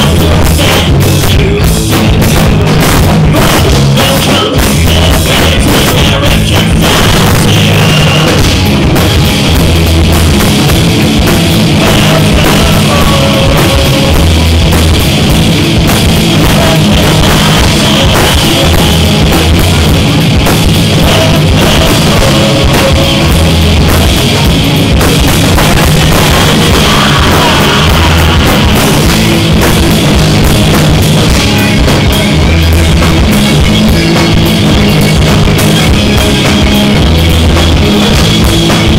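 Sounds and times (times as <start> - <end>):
live rock band playing: 0.0 - 38.9.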